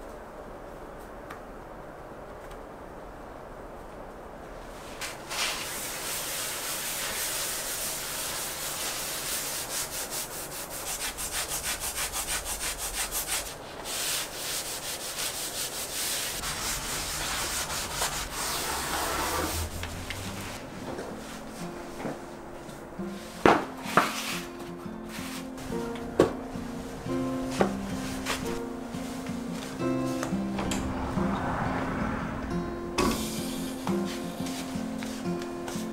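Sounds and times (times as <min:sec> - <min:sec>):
brush scrubbing tile floor: 0:04.8 - 0:25.9, 0:26.6 - 0:29.8, 0:33.0 - 0:35.9
soft music: 0:16.3 - 0:35.9.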